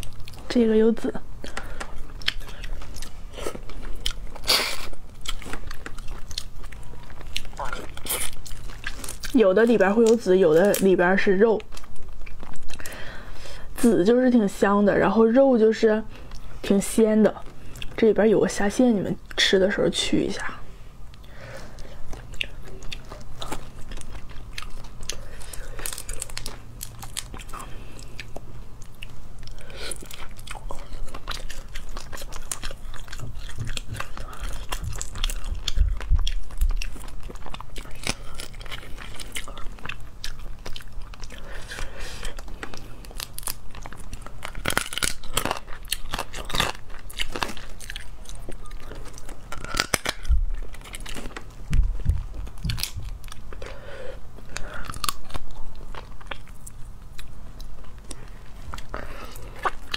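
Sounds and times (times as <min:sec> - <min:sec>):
mouth biting and chewing: 0:01.4 - 0:10.7, 0:21.7 - 0:53.7, 0:54.4 - 0:59.9.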